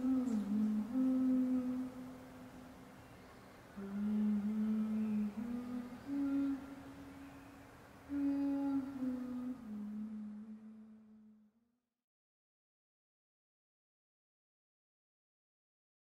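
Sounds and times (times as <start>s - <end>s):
woman humming: 0.0s - 2.4s, 3.8s - 7.2s, 8.1s - 11.5s.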